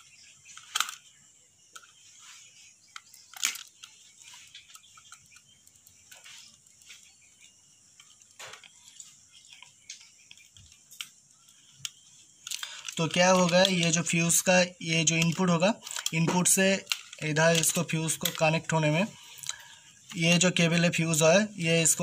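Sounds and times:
sharp clicks: 8.0s - 20.9s.

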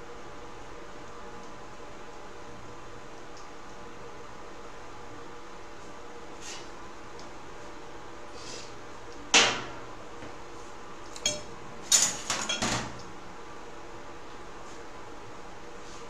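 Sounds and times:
metal utensils clanking: 11.2s - 12.9s.

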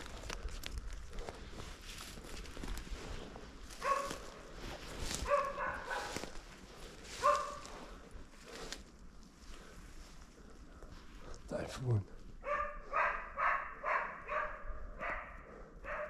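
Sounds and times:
footsteps rustling through undergrowth: 0.0s - 11.3s
dog barking: 3.8s - 4.4s, 5.2s - 6.4s, 7.2s - 7.8s, 12.4s - 16.0s.

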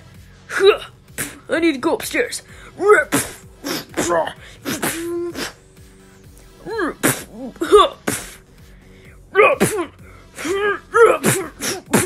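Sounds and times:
person shouting and grunting: 2.8s - 5.6s, 6.6s - 8.1s, 9.3s - 12.0s.

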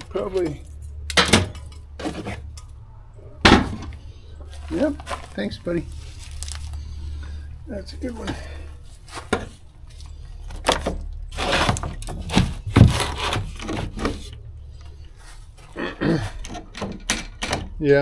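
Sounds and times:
objects rustling: 3.5s - 7.5s.

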